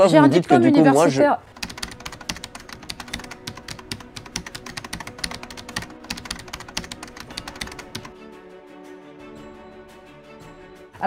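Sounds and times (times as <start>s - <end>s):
soft background music: 0.0s - 11.0s
keyboard typing clicks: 1.5s - 8.1s.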